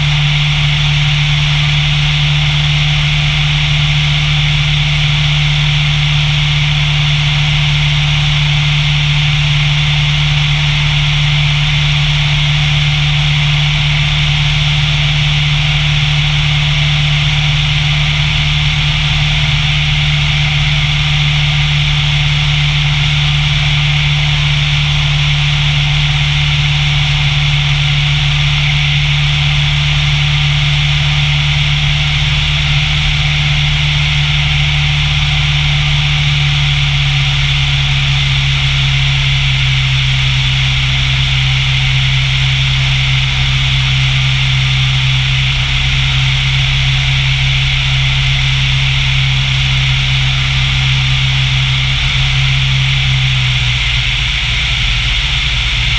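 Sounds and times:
airplane engine drone: 12.8s - 55.9s.

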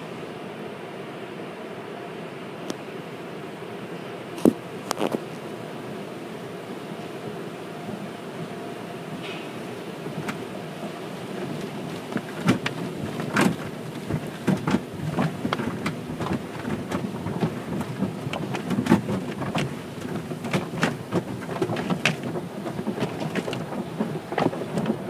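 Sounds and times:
water spray drumming on a car: 9.5s - 25.0s
cloth strips slapping a car: 10.1s - 25.0s.

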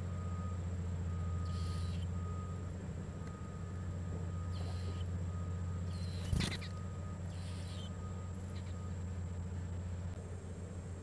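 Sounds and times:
steady low hum: 0.0s - 11.0s
nestlings begging cheeps: 1.1s - 3.6s, 4.2s - 10.1s.

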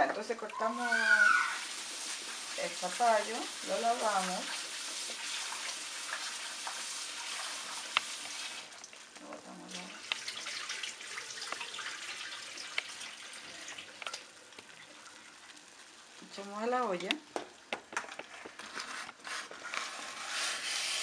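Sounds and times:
tap water running into bowl: 0.1s - 15.5s.

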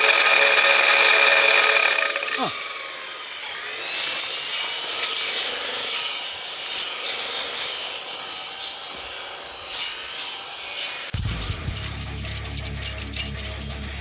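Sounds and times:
cutting tool rasping through wood: 0.0s - 11.2s.

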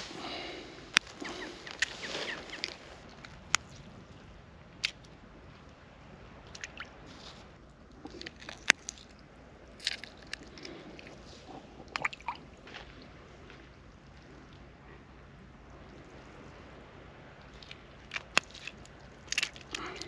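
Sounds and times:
wet squelches and crunches: 0.9s - 3.9s, 6.4s - 13.8s, 17.4s - 20.0s.

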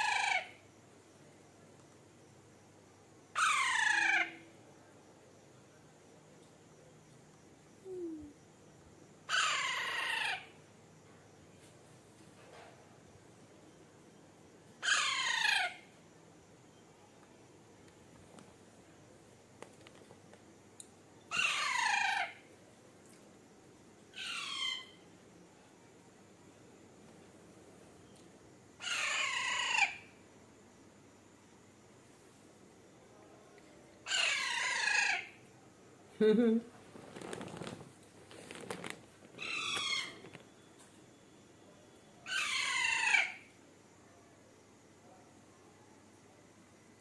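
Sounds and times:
parakeet calling: 3.4s - 4.3s, 9.3s - 10.5s, 14.8s - 15.8s, 21.3s - 22.4s, 24.2s - 25.0s, 28.8s - 30.0s, 34.1s - 35.3s, 39.4s - 40.4s, 42.2s - 43.4s
soft rustling: 36.7s - 41.0s
parakeet squawking: 39.4s - 40.2s, 42.3s - 43.3s.

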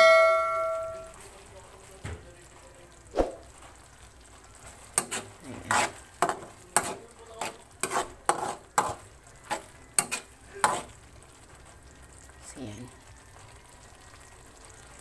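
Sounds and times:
metal spoon scraping a metal pan: 4.9s - 11.0s.

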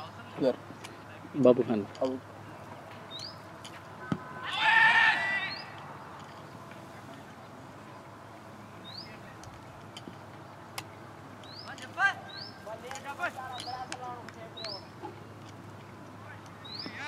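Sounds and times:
loud high wavering call: 4.3s - 5.8s.

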